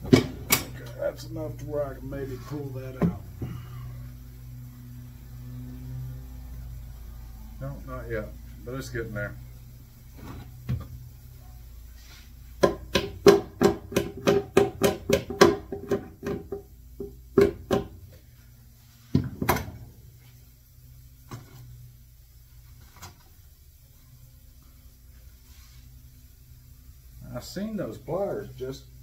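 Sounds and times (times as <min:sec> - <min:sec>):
tool tapping on wooden box: 0:12.6 - 0:17.9.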